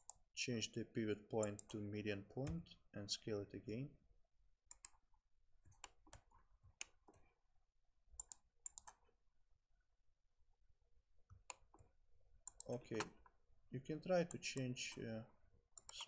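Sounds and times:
mouse and keyboard clicks: 4.7s - 5.0s, 5.6s - 7.3s, 8.2s - 9.0s, 12.5s - 13.2s, 15.8s - 16.0s.

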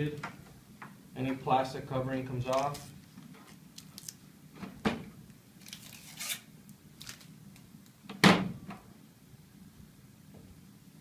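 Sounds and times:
plastic film peeling and crinkling: 2.4s - 4.3s, 5.6s - 7.7s.

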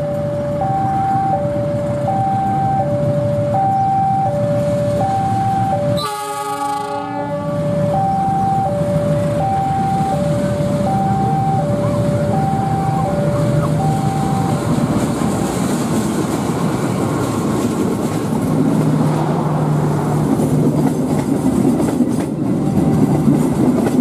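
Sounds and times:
level crossing alarm two tones: 0.0s - 6.2s, 7.3s - 14.7s
locomotive horn: 0.0s - 14.7s
diesel locomotive rumble: 0.0s - 24.0s.

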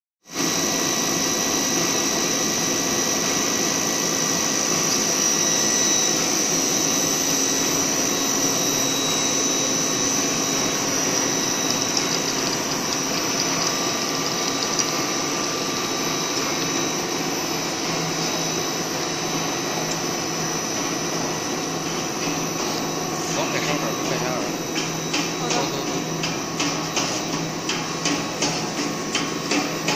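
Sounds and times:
machine drone with high whine: 0.3s - 29.9s.

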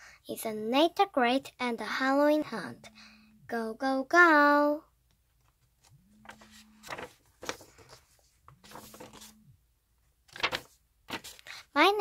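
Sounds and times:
book pages turning: 5.4s - 9.4s, 10.2s - 11.7s.

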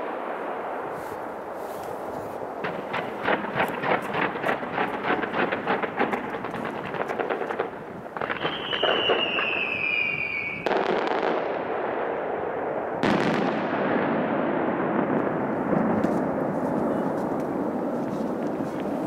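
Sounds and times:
steady rush of noise: 0.0s - 8.8s
fireworks crackling: 0.0s - 19.0s
falling whistle: 8.4s - 10.6s.

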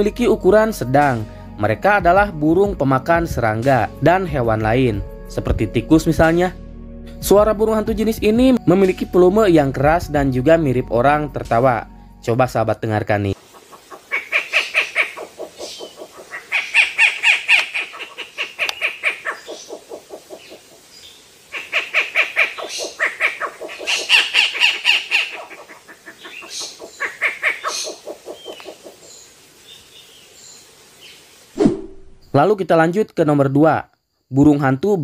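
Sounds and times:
owls calling: 13.3s - 31.2s.

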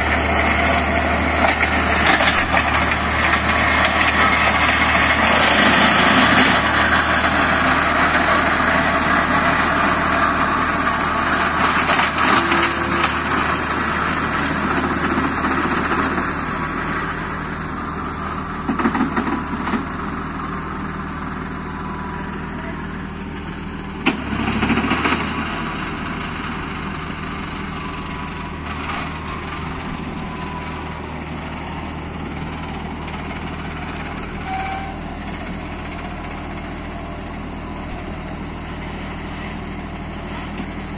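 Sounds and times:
diesel tractor engine running: 0.0s - 40.9s
mulcher shredding undergrowth: 0.0s - 40.9s.

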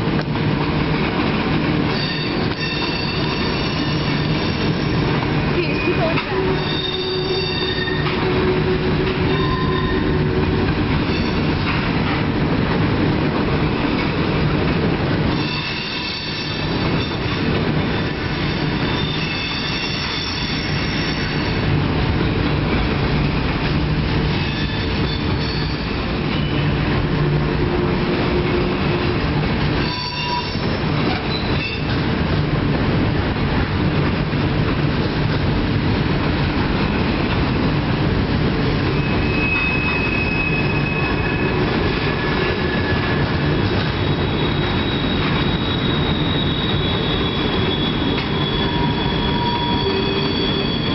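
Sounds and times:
train wheels rumbling on rails: 0.0s - 50.9s
high-pitched wheel squeals: 2.0s - 5.0s, 6.3s - 10.2s, 18.4s - 21.5s, 24.4s - 26.6s, 29.8s - 31.9s, 38.9s - 43.3s, 43.9s - 50.9s.

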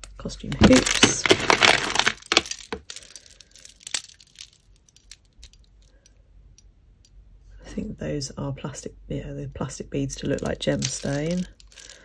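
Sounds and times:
beads clicking and clinking: 0.6s - 6.1s, 10.2s - 12.0s.

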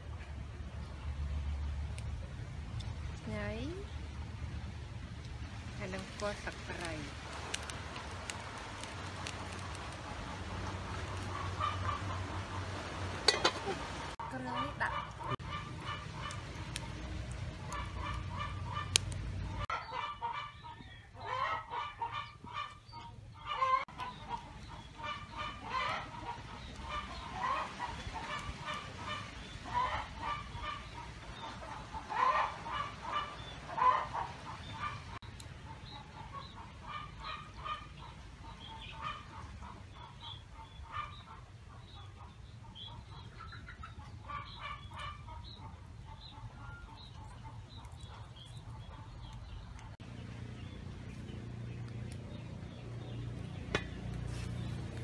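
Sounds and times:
fowl honking and clucking: 9.3s - 17.0s, 17.6s - 49.2s.

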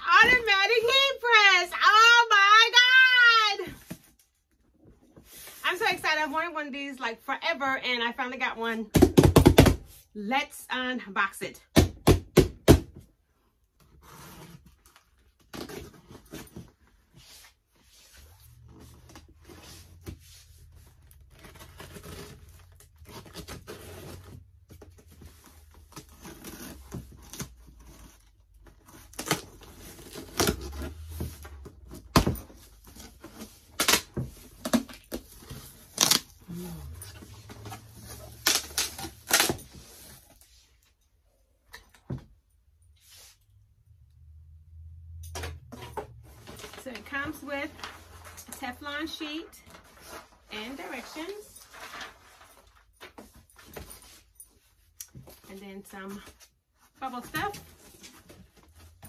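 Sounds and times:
packing tape tearing: 32.9s - 40.1s.

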